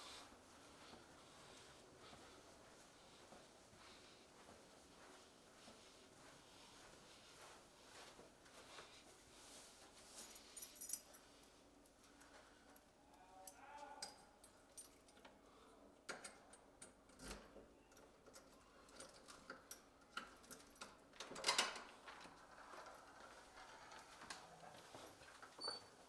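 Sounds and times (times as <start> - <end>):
keys clinking: 10.1 - 15.4.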